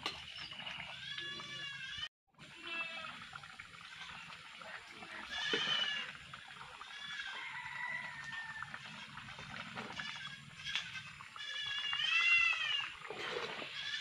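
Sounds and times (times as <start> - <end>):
animal crying: 11.4 - 13.0.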